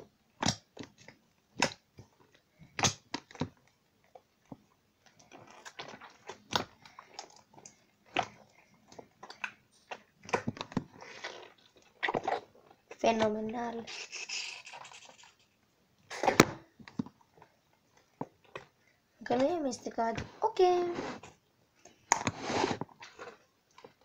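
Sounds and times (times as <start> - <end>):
slime squishing and popping: 0.4 - 2.1, 2.8 - 3.6.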